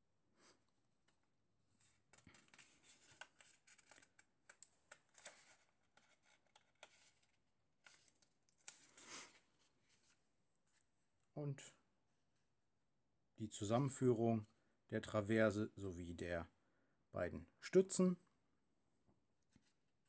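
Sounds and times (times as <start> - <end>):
paper pages rustling: 1.8 - 10.9.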